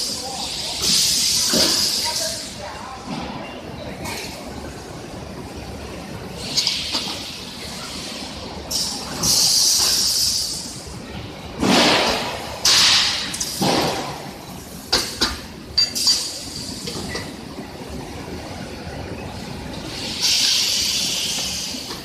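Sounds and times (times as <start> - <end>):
machine hissing: 0.0 - 2.6, 6.4 - 10.8, 19.8 - 22.0.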